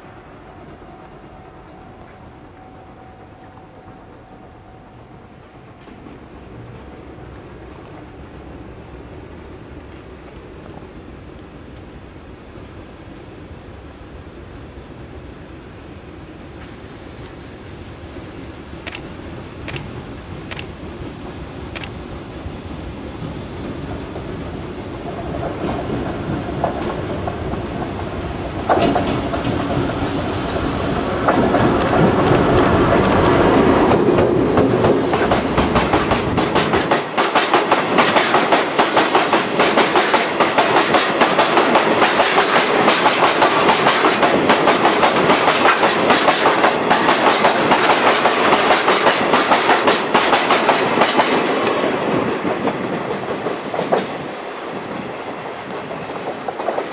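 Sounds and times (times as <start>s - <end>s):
heavy low train rumble: 0.0s - 56.9s
wheels clacking over rail joints: 25.3s - 56.9s.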